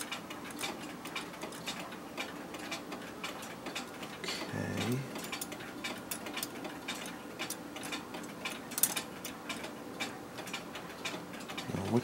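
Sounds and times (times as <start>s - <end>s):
clock movement ticking and clicking: 0.0s - 12.0s.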